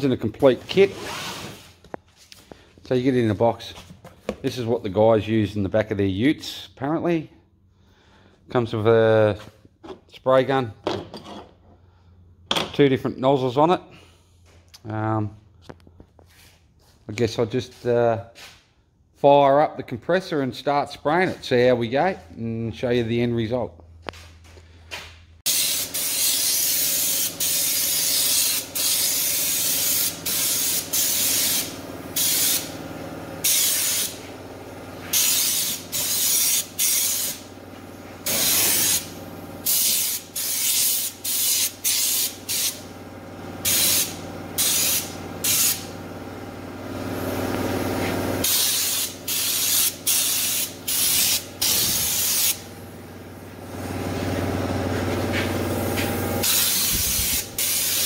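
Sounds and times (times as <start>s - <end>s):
air spray gun hissing bursts: 25.4s - 42.9s, 43.6s - 46.0s, 47.0s - 58.0s.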